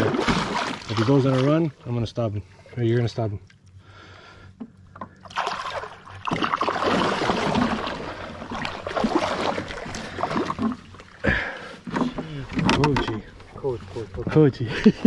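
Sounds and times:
fish thrashing and splashing: 0.0s - 1.6s, 5.2s - 13.4s.

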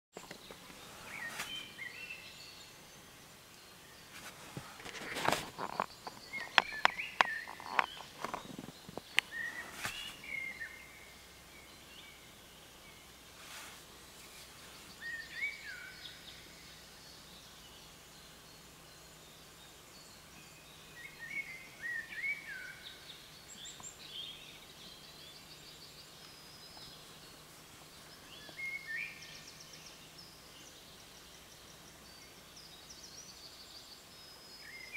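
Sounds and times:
songbirds singing: 0.2s - 34.9s
sharp clicks and knocks: 4.8s - 9.3s.

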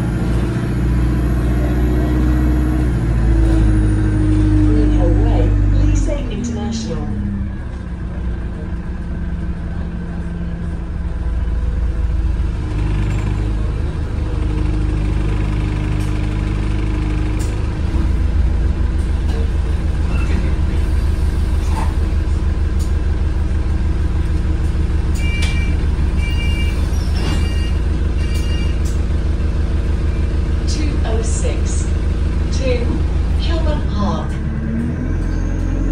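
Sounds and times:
bus diesel engine drone: 0.0s - 35.9s
two-tone electronic beeps: 25.2s - 28.8s.

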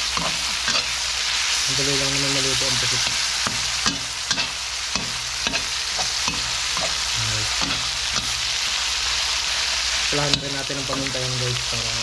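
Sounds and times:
metal spatula scraping wok: 0.0s - 11.1s
meat sizzling in hot oil: 0.0s - 12.0s.

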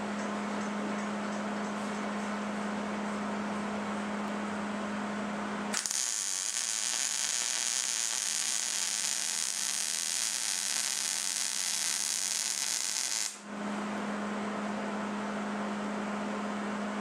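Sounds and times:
welding arc hissing: 5.8s - 13.4s.

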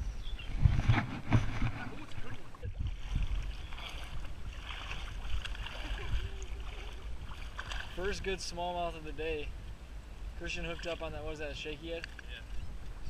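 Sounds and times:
water sloshing around legs: 0.8s - 8.2s.

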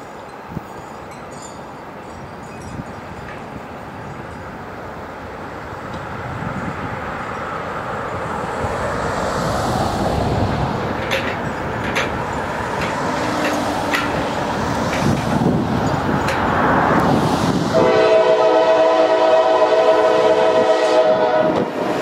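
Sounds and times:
diesel locomotives rumbling: 0.0s - 22.0s
wheels clicking on track: 10.4s - 17.2s.

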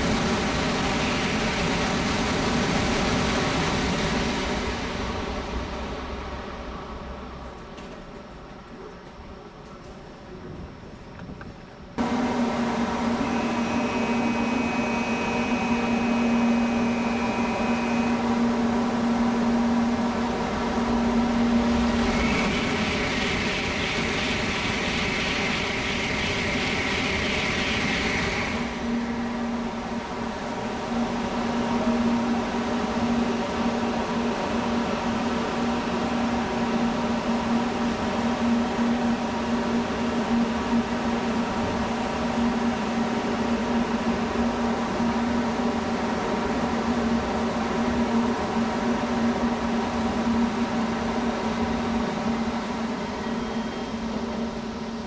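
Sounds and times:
high speed train passing: 0.0s - 11.2s, 11.8s - 55.0s.

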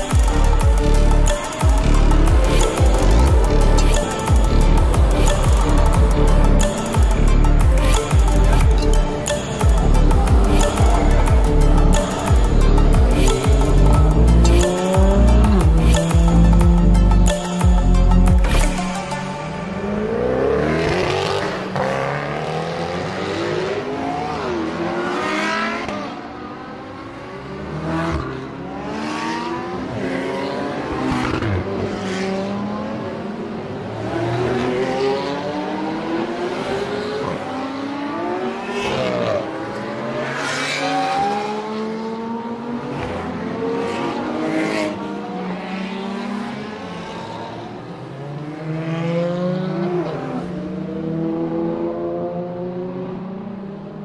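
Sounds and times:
sports car engines revving: 0.0s - 54.0s.

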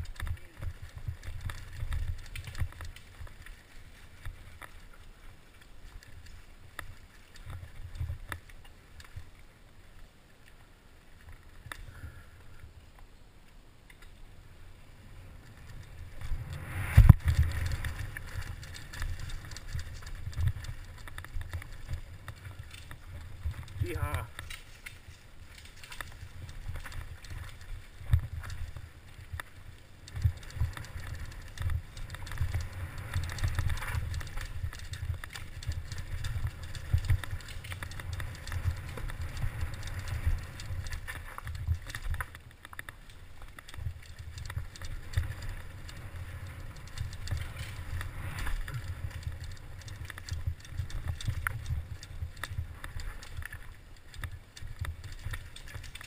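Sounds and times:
bike tyres rolling over dirt: 0.0s - 13.1s, 14.0s - 56.0s
constant low rumble: 13.8s - 56.0s
bike knocks and rattles: 15.4s - 56.0s.

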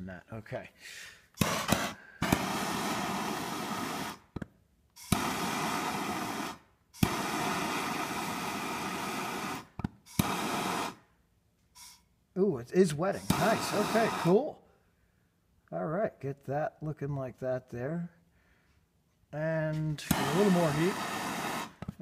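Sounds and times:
gas torch hissing: 1.3s - 4.4s, 5.0s - 11.1s, 11.8s - 12.0s, 13.1s - 14.5s, 20.0s - 22.0s
torch igniter click: 9.8s - 10.4s, 13.2s - 13.8s.

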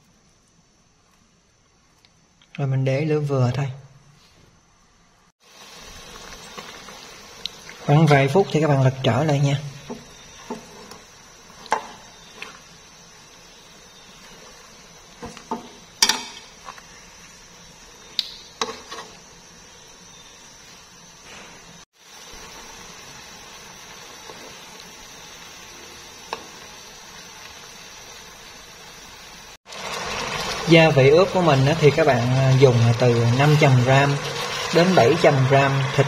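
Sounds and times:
sauce simmering and sizzling: 5.2s - 36.0s
metal tongs tapping pan: 15.3s - 16.5s.

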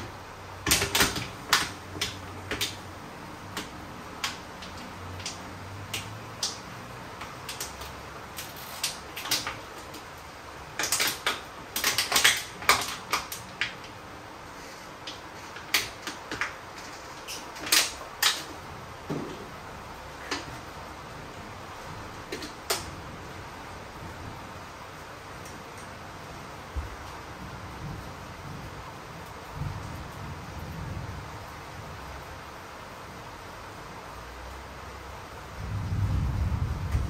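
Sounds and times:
plastic containers clicking and knocking: 0.0s - 14.0s, 15.0s - 19.6s, 20.2s - 20.7s, 22.2s - 22.9s.

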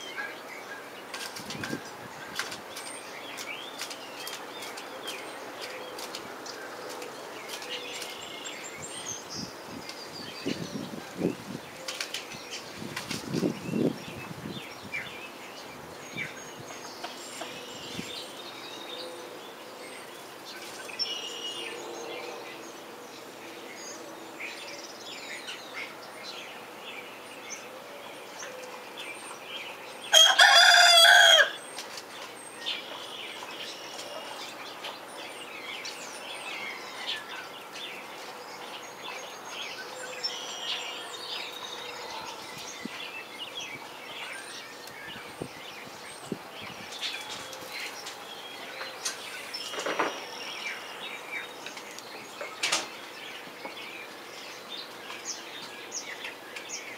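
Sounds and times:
small birds chirping: 0.0s - 56.9s
young rooster crowing: 30.1s - 31.6s.

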